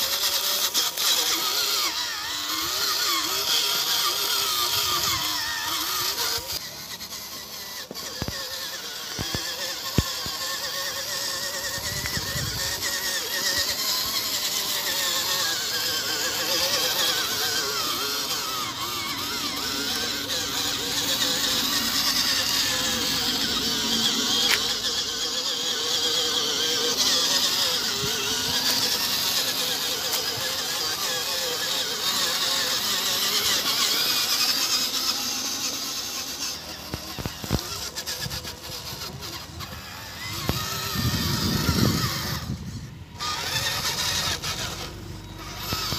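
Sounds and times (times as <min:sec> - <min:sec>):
toy truck motor whining: 0:00.0 - 0:45.9.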